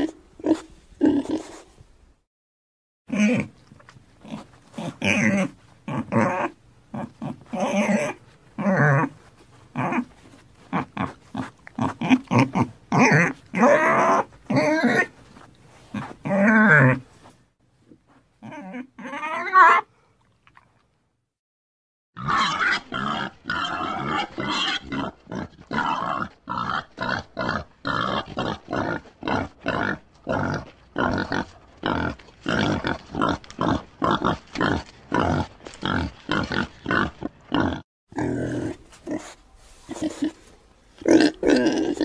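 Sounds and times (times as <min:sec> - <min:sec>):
pig grunting: 0:04.2 - 0:10.1, 0:10.7 - 0:15.1, 0:22.2 - 0:40.4, 0:41.0 - 0:42.0.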